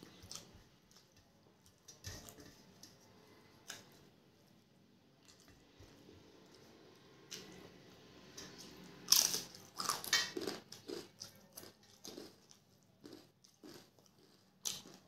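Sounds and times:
crunchy food crunching: 0:09.1 - 0:15.0.

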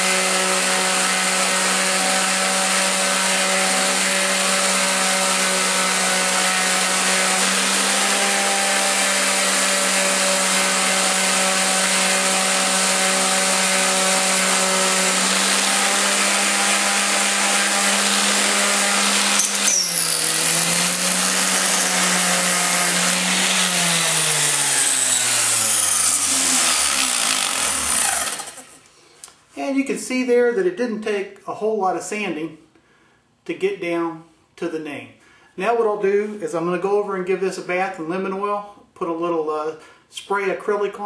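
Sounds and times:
orbital sander running: 0:00.0 - 0:28.8.

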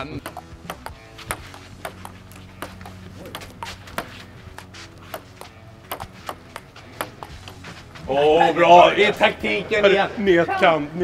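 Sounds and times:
table tennis ball hits: 0:00.0 - 0:07.8.

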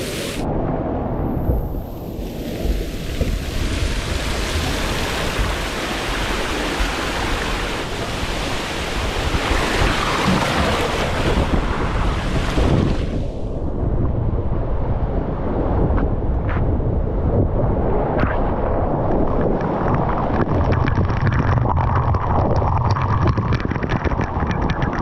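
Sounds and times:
wind buffeting microphone: 0:00.4 - 0:25.0
rushing splashing water: 0:02.1 - 0:13.4, 0:18.8 - 0:25.0.

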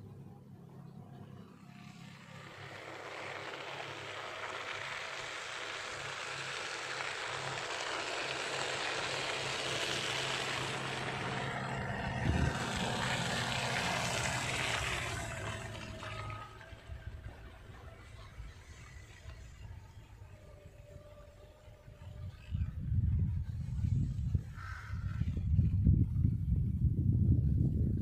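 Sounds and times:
car passing on wet road: 0:02.4 - 0:16.9.

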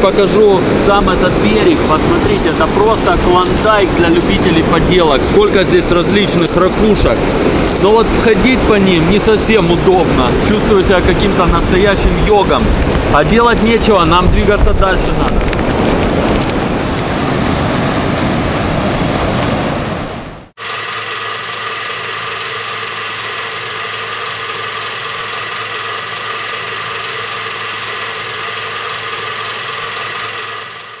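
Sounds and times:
waves washing onto pebble shore: 0:00.1 - 0:20.1.

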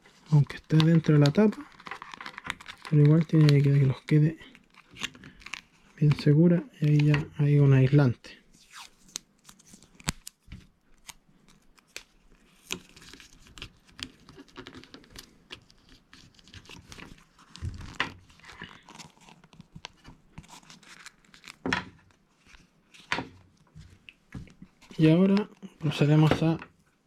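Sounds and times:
small clicks and rustles: 0:00.0 - 0:03.8, 0:09.0 - 0:25.4.

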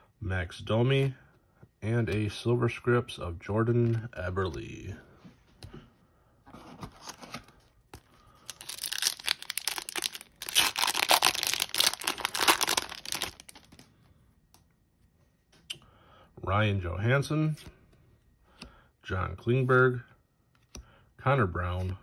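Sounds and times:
card pack wrapper tearing: 0:08.0 - 0:13.8.

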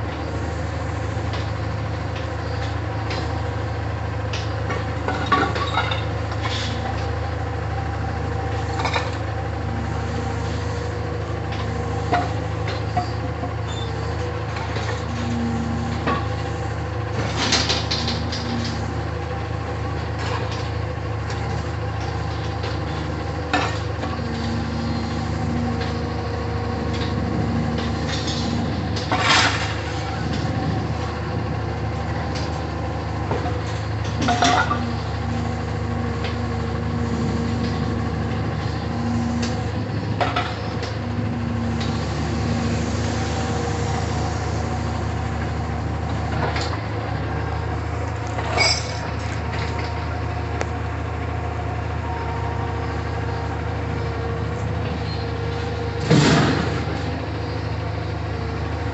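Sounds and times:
diesel engine running: 0:00.0 - 0:58.9
scrap metal clanks: 0:33.4 - 0:35.1, 0:48.4 - 0:49.7.

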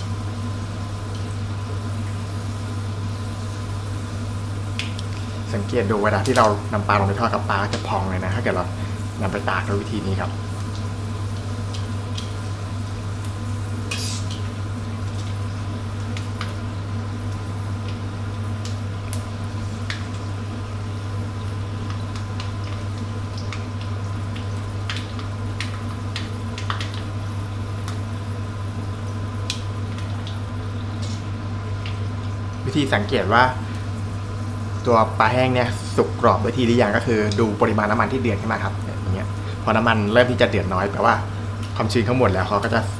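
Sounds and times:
fish deep-frying in oil: 0:00.0 - 0:42.9
steady low hum: 0:00.0 - 0:42.9.

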